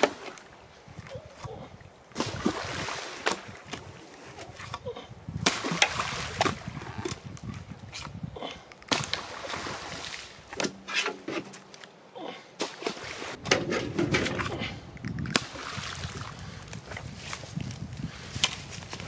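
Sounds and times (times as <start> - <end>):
pitchfork scraping in wheelbarrow: 10.6 - 11.7.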